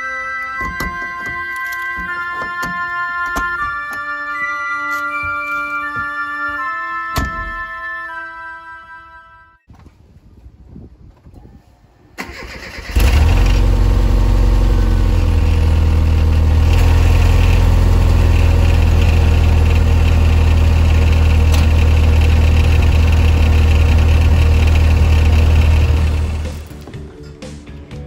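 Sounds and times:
car engine starting and idling: 0:12.2 - 0:26.8
exhaust muffler rattle: 0:12.9 - 0:26.7.

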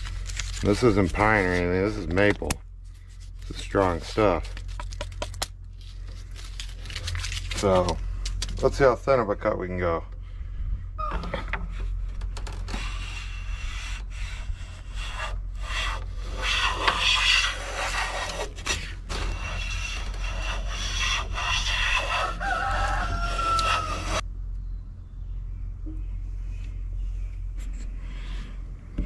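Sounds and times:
hand plane shaving wood: 0:12.7 - 0:24.2.

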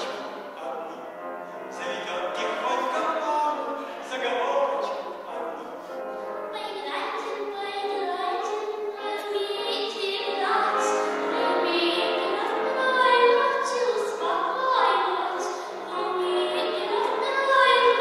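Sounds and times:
woman singing into microphone: 0:11.6 - 0:18.0.

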